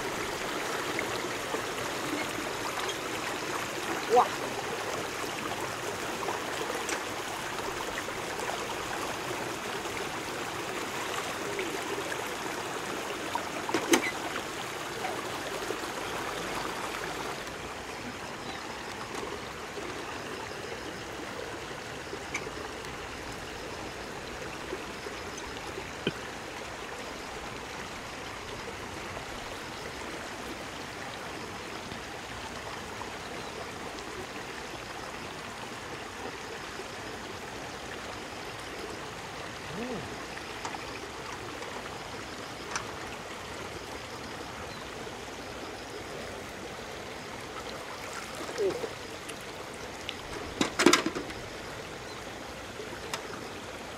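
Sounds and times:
stream running over rocks: 0:00.0 - 0:53.9
faint clicks: 0:53.0 - 0:53.4.

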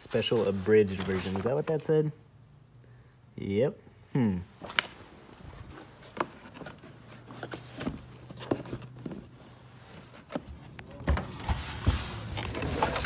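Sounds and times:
light knocks and handling noise: 0:05.6 - 0:13.0.

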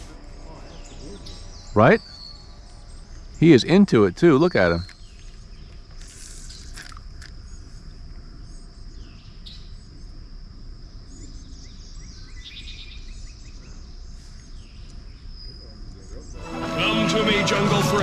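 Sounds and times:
high-pitched insect drone: 0:00.0 - 0:09.8
birds chirping: 0:00.0 - 0:10.2, 0:10.8 - 0:18.0.

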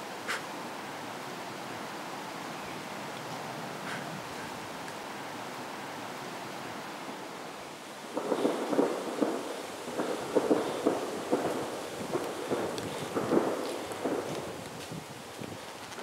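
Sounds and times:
background hiss: 0:00.0 - 0:16.0.

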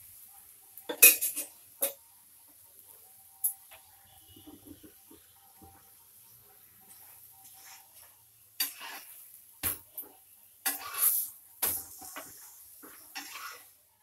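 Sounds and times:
spatula clacking on griddle: 0:00.8 - 0:02.0, 0:06.8 - 0:13.8
spatula scraping griddle: 0:06.5 - 0:13.9.

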